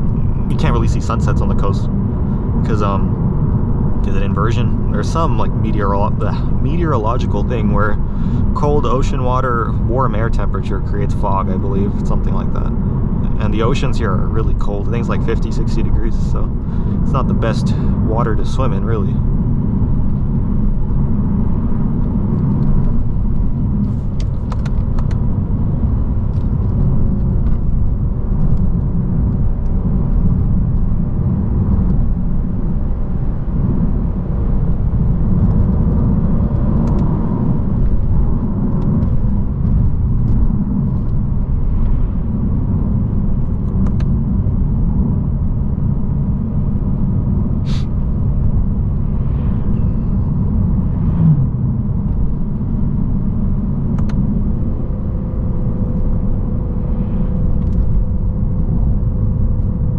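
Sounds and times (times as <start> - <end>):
road and tyre rumble: 0.0 - 59.9
faint engine note: 46.4 - 59.8.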